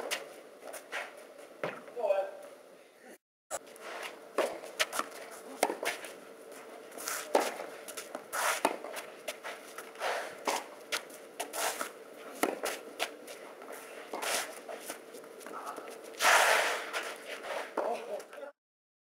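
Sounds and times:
shoes scuffing on clay: 0:03.6 - 0:18.2.

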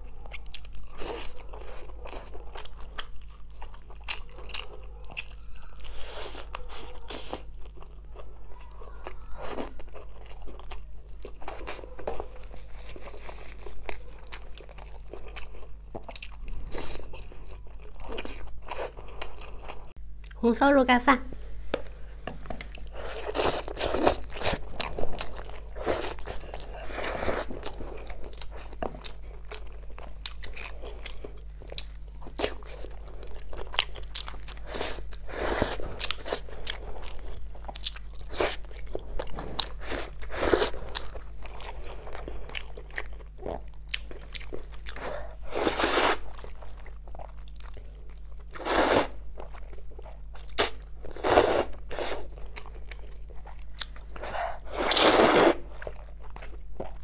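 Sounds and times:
person chewing meat: 0:00.0 - 0:20.4, 0:22.1 - 0:57.0
slurping noodles: 0:45.5 - 0:46.2, 0:48.6 - 0:49.2, 0:54.7 - 0:55.6.

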